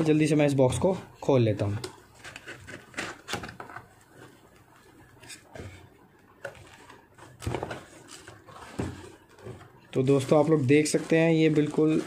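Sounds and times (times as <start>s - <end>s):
cardboard box rustling and scraping: 6.6s - 12.0s.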